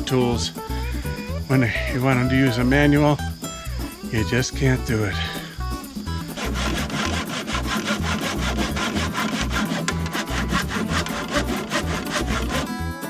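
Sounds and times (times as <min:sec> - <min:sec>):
background music: 0:00.0 - 0:13.0
hand saw cutting wood: 0:06.2 - 0:12.8.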